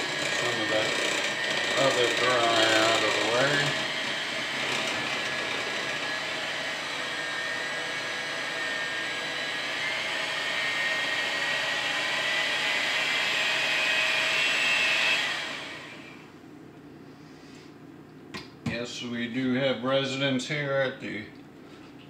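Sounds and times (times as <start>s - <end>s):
electric hand mixer whining: 0.0s - 16.3s.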